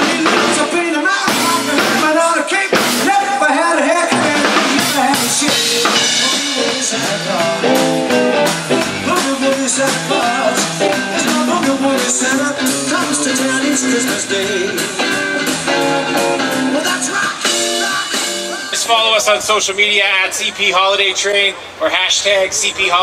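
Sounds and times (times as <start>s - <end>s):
person singing: 0.0s - 18.7s
drum kit: 0.0s - 19.6s
electric guitars: 0.0s - 19.6s.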